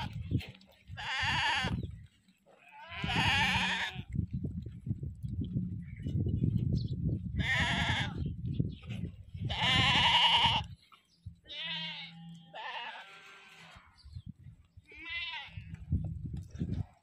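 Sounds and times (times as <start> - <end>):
sheep and goats bleating: 0.0 - 0.2, 0.8 - 4.2, 7.3 - 8.4, 9.4 - 10.8, 11.4 - 14.1, 14.9 - 15.8.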